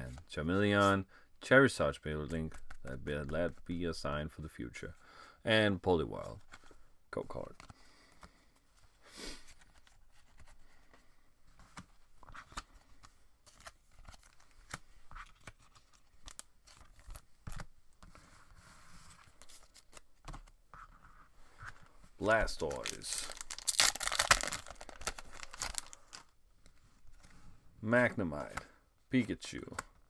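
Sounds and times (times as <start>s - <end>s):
plastic card sleeves rustling: 6.1s - 27.4s.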